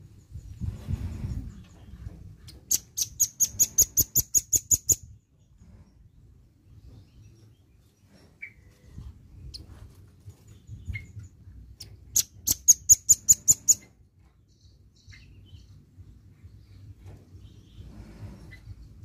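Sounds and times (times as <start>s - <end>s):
high bird trill: 2.5s - 5.2s, 10.8s - 14.0s
bird chirps: 2.5s - 5.6s, 10.5s - 18.8s.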